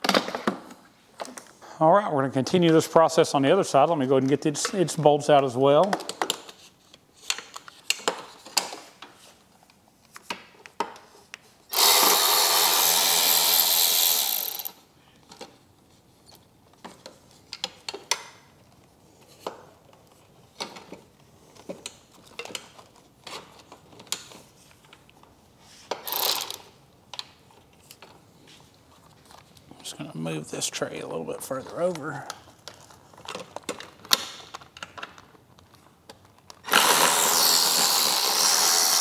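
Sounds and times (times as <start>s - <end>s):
cordless ratchet motor running: 11.7s - 14.8s, 26.1s - 26.6s, 36.7s - 39.0s.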